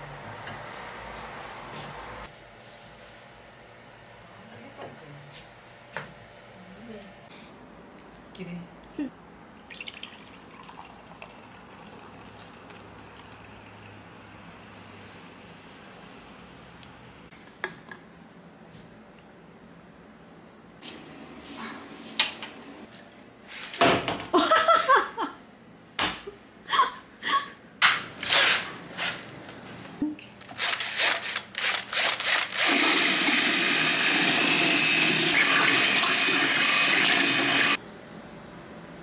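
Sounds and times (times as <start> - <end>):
drill with mixing paddle stirring: 32.2 - 37.8.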